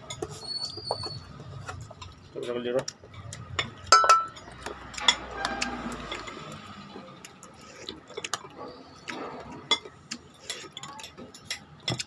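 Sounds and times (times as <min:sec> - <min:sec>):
spoons clinking on ceramic: 0:03.6 - 0:05.2.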